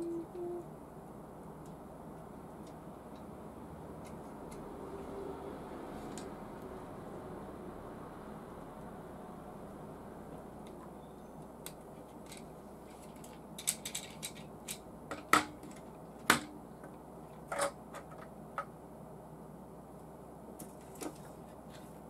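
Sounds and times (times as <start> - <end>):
plastic parts clicking: 12.1 - 16.4.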